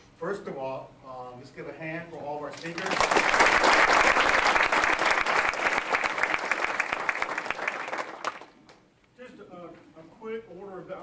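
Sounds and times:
audience applauding: 2.6 - 8.8.

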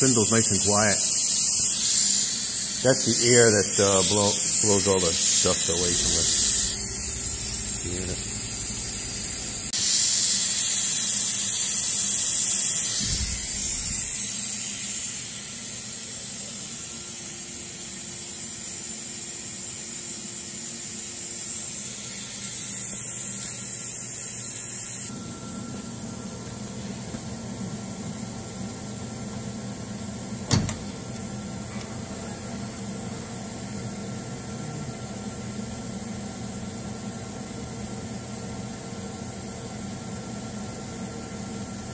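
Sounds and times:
compressed air hissing: 0.0 - 25.1.

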